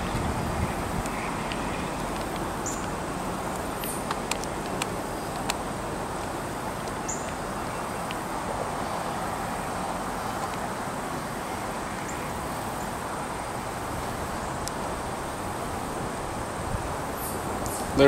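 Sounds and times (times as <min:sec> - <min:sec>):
rumble and hiss: 0:00.0 - 0:18.0.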